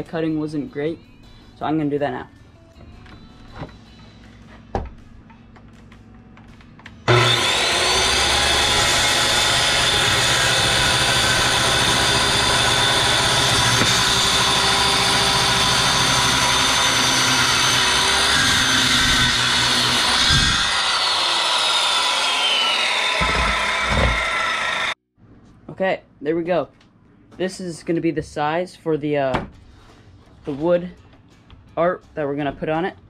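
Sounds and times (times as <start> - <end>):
circular saw cutting wood: 7.0 - 25.0.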